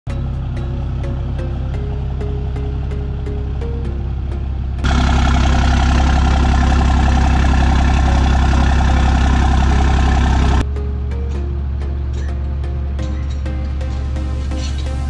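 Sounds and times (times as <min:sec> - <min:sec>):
background music: 0:00.1 - 0:04.9, 0:10.6 - 0:15.0
pickup truck engine clattering: 0:00.4 - 0:10.6.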